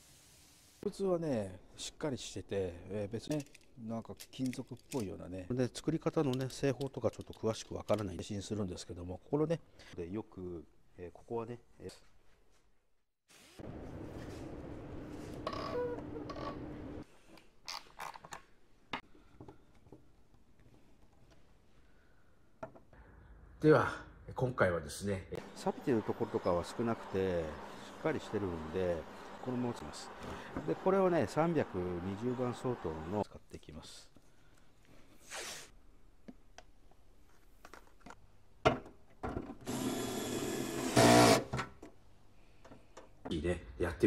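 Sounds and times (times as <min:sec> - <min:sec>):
plastic parts clicking and tapping: 0:03.3 - 0:05.2, 0:06.2 - 0:08.1
screwdriver motor whirring: 0:39.7 - 0:41.5.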